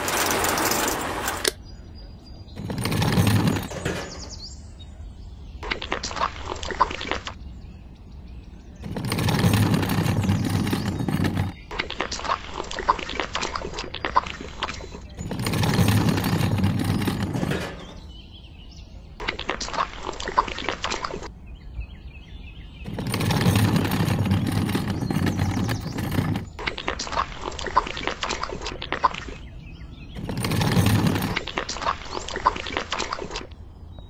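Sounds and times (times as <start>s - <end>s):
wet concrete scraped and poured: 8.8s - 11.6s, 30.2s - 33.5s.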